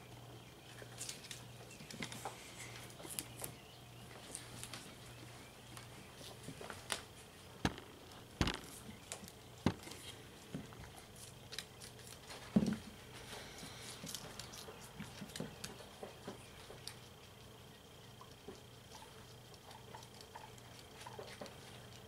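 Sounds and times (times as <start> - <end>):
guinea pigs crunching cucumber: 0.1 - 22.0
loud knock: 7.6 - 8.7.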